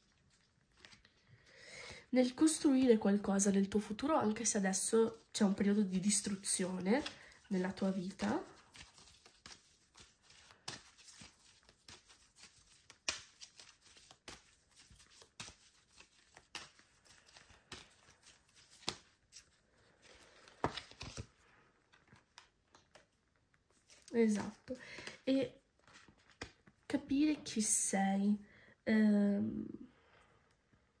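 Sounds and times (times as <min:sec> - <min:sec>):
cards being shuffled: 0:00.3 - 0:01.2, 0:04.8 - 0:26.8.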